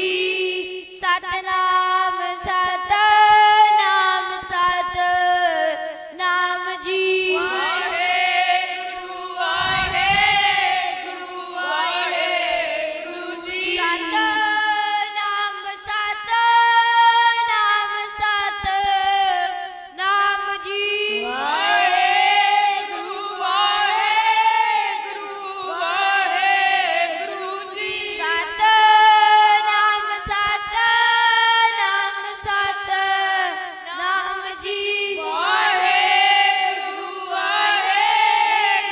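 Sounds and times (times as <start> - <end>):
voices singing a slow chant: 0.0 - 38.9
steady held drone: 9.4 - 14.4.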